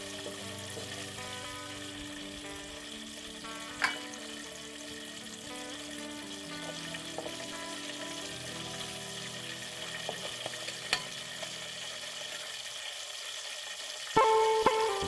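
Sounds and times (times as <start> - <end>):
vegetables sizzling in a wok: 0.0 - 15.0
metal spoon stirring: 10.5 - 11.1.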